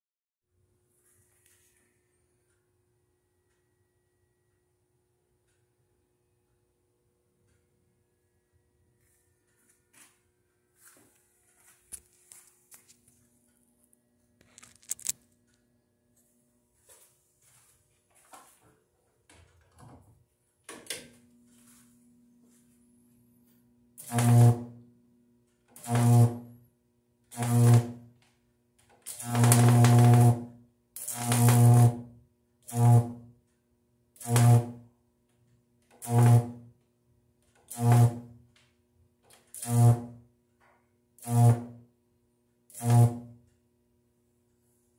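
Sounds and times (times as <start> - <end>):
faint mains hum: 0.6 - 30.9
high-voltage electric arcs buzzing: 24.0 - 24.8, 25.8 - 26.6, 27.3 - 28.1, 29.0 - 33.3, 34.2 - 34.8, 36.0 - 36.7, 37.7 - 38.3, 39.5 - 40.2, 41.2 - 41.8, 42.7 - 43.4.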